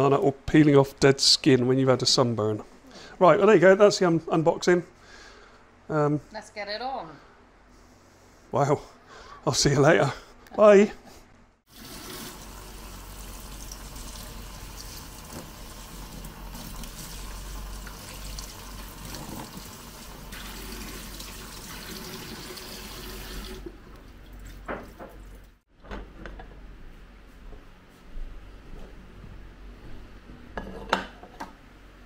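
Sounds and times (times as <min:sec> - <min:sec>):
water running from a tap: 0:11.7 - 0:23.7.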